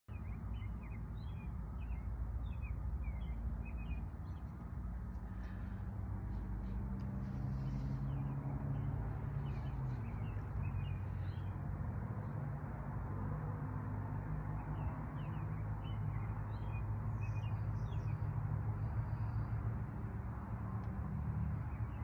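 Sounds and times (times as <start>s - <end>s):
small birds chirping: 0.1s - 11.6s, 14.8s - 19.6s
low engine rumble: 0.1s - 22.0s.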